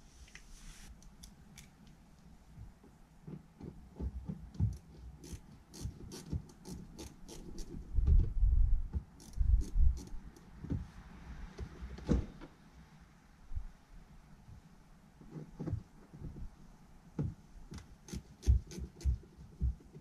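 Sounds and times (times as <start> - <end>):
hand tool clicks and scrapes: 4.6 - 7.8.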